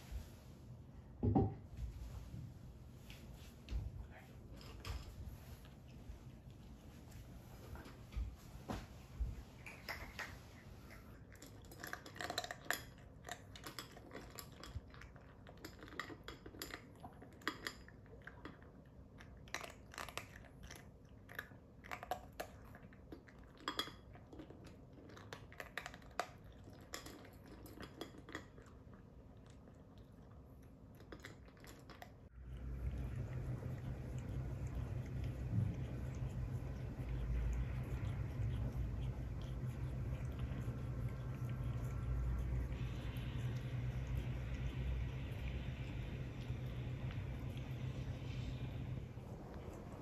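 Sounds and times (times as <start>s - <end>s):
cat crunching dry kibble: 31.0s - 48.2s.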